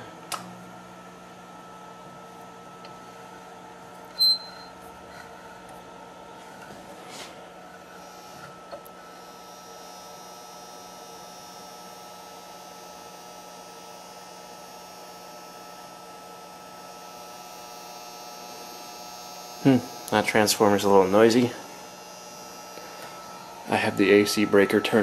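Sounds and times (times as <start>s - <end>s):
small click: 0.3s - 0.5s
faint high whine: 4.1s - 4.8s, 19.3s - 25.0s.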